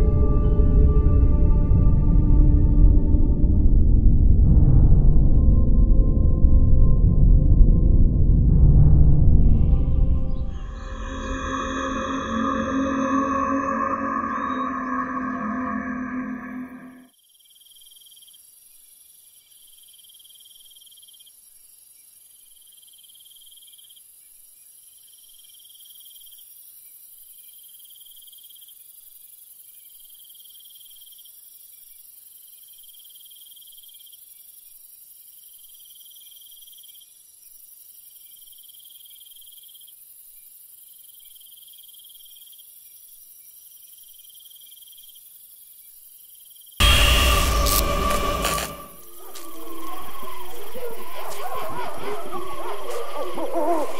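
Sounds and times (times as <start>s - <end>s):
crickets chirping: 9.4s - 53.9s
high-pitched insect hum: 9.6s - 53.9s.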